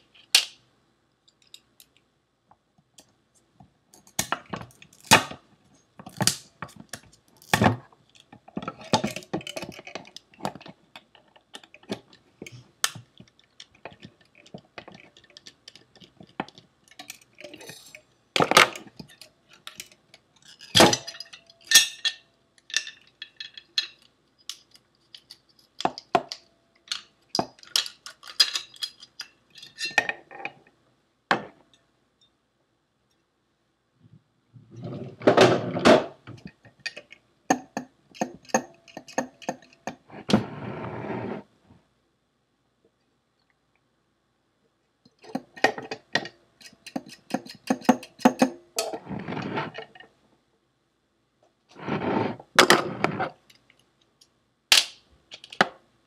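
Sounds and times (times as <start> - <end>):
metal parts clinking and knocking: 13.2 - 30.2.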